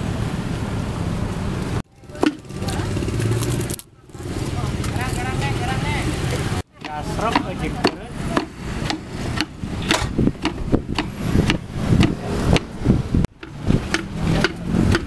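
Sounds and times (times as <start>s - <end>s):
wooden pestle pounding in mortar: 2.1s - 2.6s, 6.7s - 15.0s.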